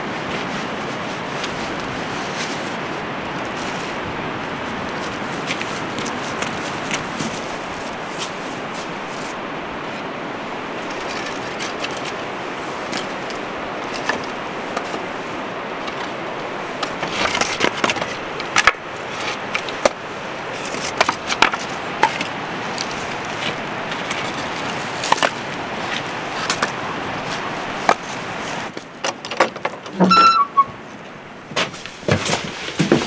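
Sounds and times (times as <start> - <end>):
steady background noise: 0.0 - 33.0
door hinge creaking: 29.8 - 30.8.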